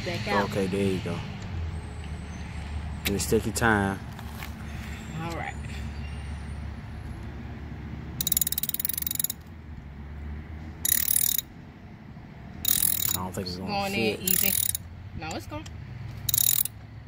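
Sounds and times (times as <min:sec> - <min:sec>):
hand ratchet clicking: 0:08.2 - 0:09.5, 0:10.9 - 0:11.5, 0:12.6 - 0:13.3, 0:14.2 - 0:14.8, 0:16.2 - 0:16.8.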